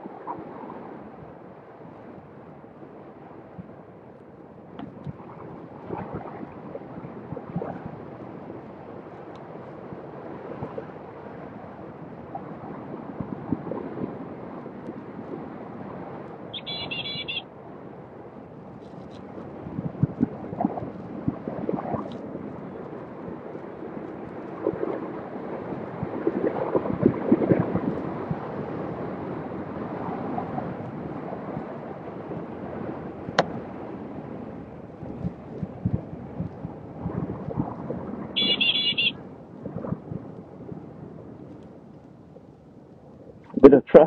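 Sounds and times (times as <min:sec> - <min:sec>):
wind buffeting microphone: 0:00.0 - 0:44.0
high electronic beep: 0:16.6 - 0:17.4, 0:38.4 - 0:39.2.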